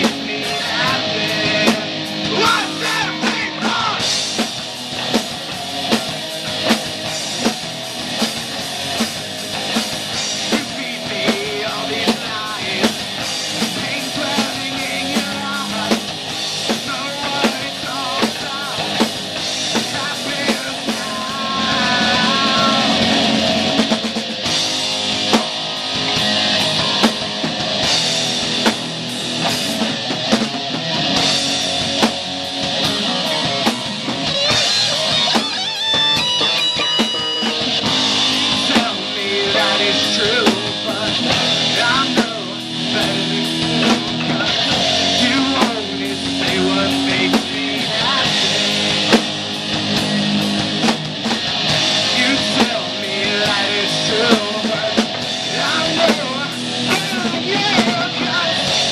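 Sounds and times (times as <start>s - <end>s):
male lead vocal: 0.0s - 4.5s, 8.6s - 24.1s, 36.4s - 50.8s, 52.0s - 58.9s
distorted electric guitars: 0.0s - 58.9s
drum kit beat: 0.0s - 58.9s
electric bass: 0.0s - 58.9s.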